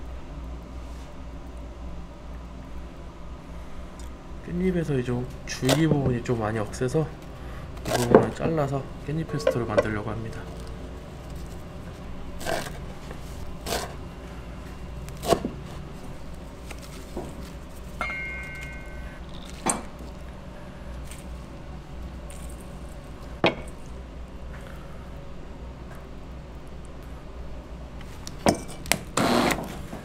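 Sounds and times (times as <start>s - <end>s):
knife chopping on cutting board: 15.2s - 15.6s
brief high tone: 18.0s - 19.2s.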